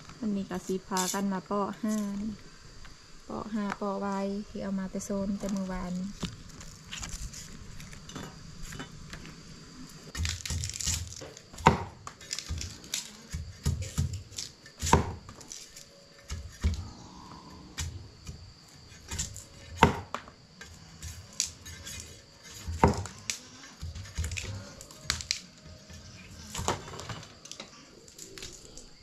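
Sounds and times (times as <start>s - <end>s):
knife splitting bamboo stalks: 10.1s - 16.8s, 17.8s - 28.9s.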